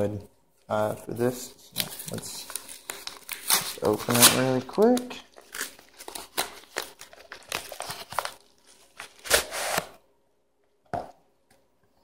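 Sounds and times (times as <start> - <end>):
paper envelope rustling: 1.7 - 9.9
envelope tearing: 1.7 - 10.0.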